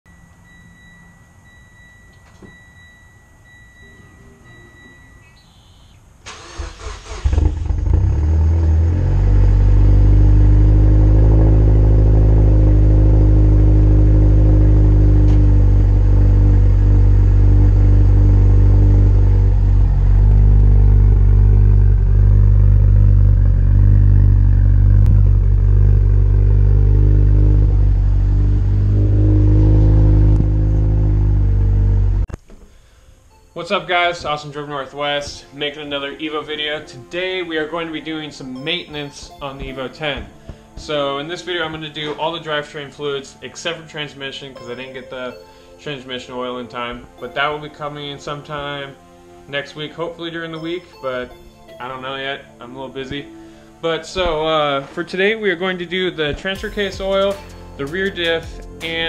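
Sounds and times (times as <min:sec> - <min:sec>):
car warning chime beeps: 0:00.1 - 0:06.9
car engine idling: 0:06.3 - 0:32.3.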